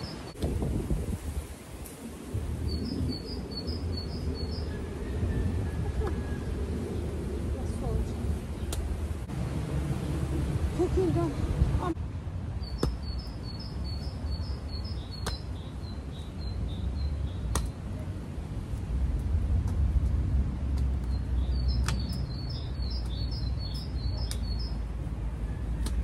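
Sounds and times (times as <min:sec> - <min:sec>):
songbird chirping: 0:00.0 - 0:00.4, 0:02.5 - 0:09.1, 0:11.8 - 0:18.0, 0:20.9 - 0:26.0
steady low rumble: 0:00.0 - 0:26.0
mattock chopping into soil: 0:12.7 - 0:13.1, 0:15.2 - 0:15.5, 0:17.5 - 0:17.8, 0:25.8 - 0:26.0.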